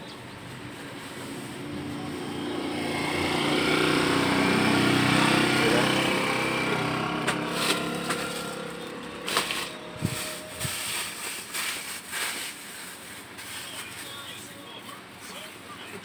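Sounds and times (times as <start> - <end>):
outdoor background noise: 0.0 - 16.0
small engine drone: 1.1 - 11.3.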